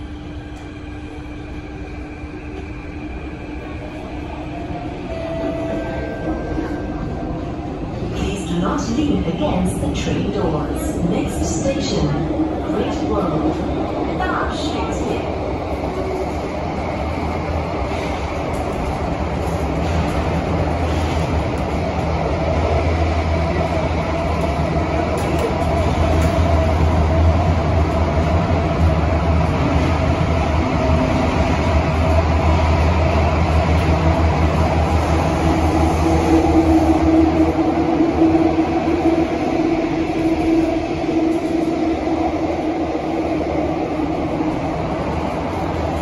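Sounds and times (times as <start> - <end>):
continuous train hum: 0.0 - 46.0
train wheels rumbling: 0.0 - 46.0.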